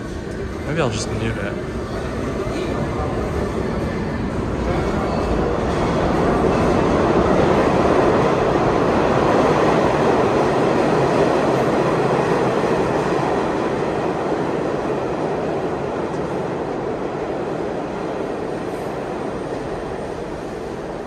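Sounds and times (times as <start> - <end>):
subway train running: 0.0 - 21.0.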